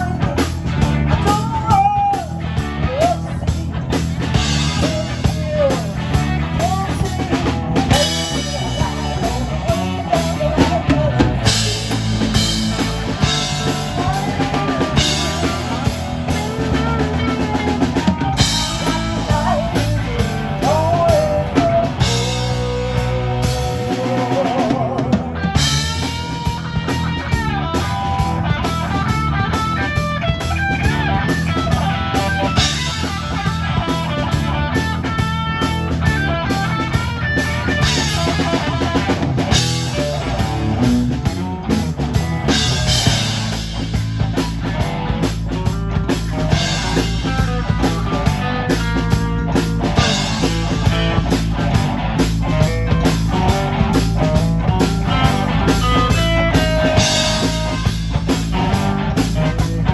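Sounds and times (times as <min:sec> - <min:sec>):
live rock band playing: 0:00.0 - 0:59.9
woman singing lead: 0:04.6 - 0:25.8.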